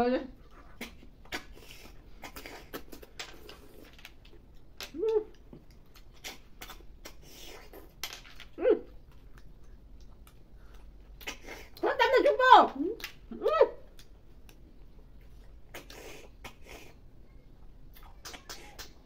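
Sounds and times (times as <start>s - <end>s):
wet sucking and smacking: 0.5s - 8.0s
person humming: 4.9s - 5.4s.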